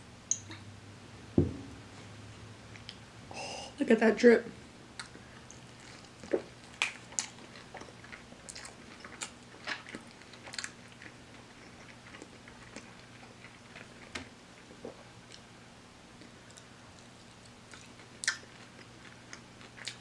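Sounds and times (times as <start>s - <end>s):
chewing with crunchy crackles: 4.9s - 15.5s, 16.1s - 20.0s.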